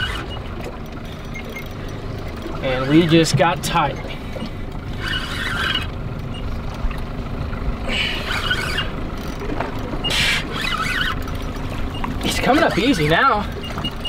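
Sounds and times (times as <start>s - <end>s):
fishing reel squealing: 0.0s - 0.5s, 2.6s - 6.5s, 7.9s - 9.4s, 10.0s - 14.0s.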